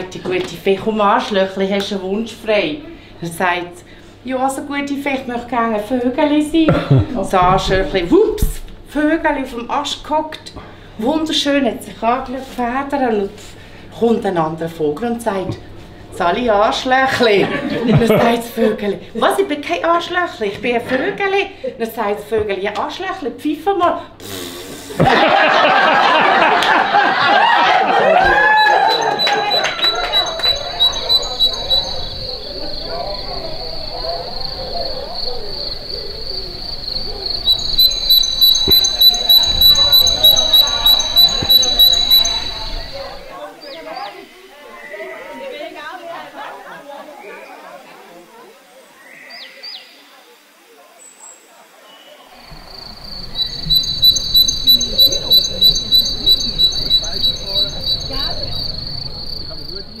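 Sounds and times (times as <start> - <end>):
crickets chirping: 2.1 - 10.1, 25.0 - 46.8, 52.2 - 60.0.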